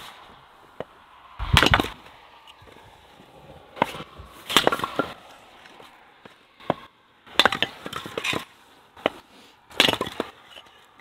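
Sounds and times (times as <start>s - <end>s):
wood chopping and splitting: 0.8s - 2.8s, 3.7s - 10.5s
wood splintering: 1.4s - 2.8s, 3.7s - 5.9s, 6.6s - 11.0s.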